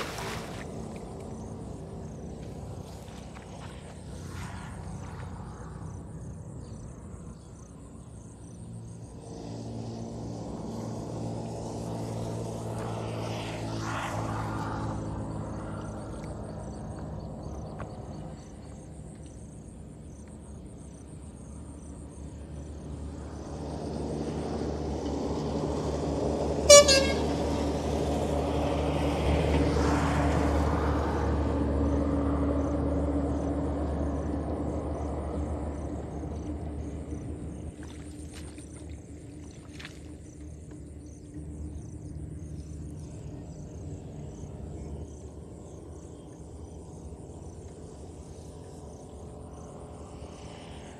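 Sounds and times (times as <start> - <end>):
vehicle engines passing: 0.0 - 50.9
short car horn toot: 26.7 - 27.3.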